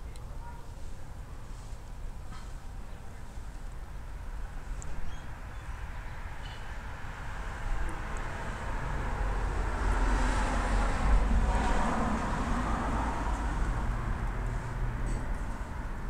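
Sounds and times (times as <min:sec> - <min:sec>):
vehicle driving past: 0:05.7 - 0:16.0.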